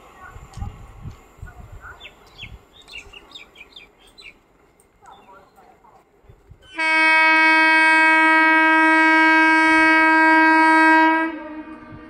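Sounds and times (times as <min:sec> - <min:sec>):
train horn blast: 0:06.8 - 0:12.0.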